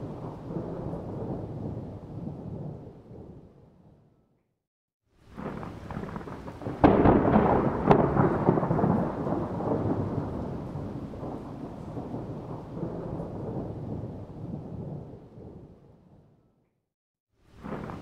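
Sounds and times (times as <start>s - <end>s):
rain: 0.0s - 3.4s, 5.1s - 16.0s, 17.4s - 18.0s
rolling thunder rumble: 0.0s - 4.0s, 5.4s - 16.2s
thunder cracks: 5.4s - 15.7s.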